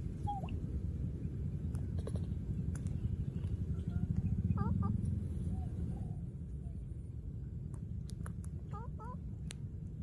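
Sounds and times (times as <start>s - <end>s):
low rumble: 0.0s - 10.0s
baby monkeys squeaking: 0.2s - 0.6s, 1.9s - 2.4s.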